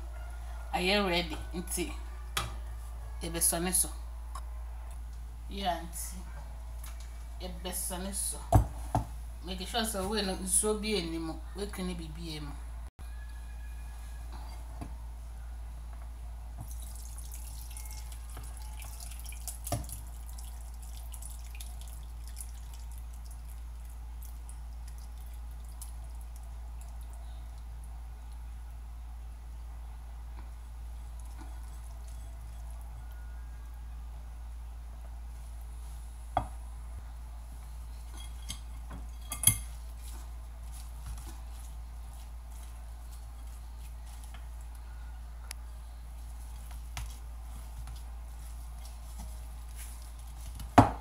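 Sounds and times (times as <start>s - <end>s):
liquid dripping through strainer: 16.6s - 28.4s
steady low hum: 20.2s - 51.0s.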